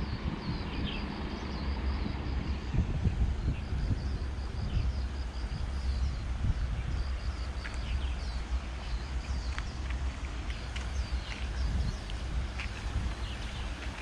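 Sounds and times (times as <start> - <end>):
wind rumbling on microphone: 0.0 - 14.0
small birds chirping: 3.4 - 14.0.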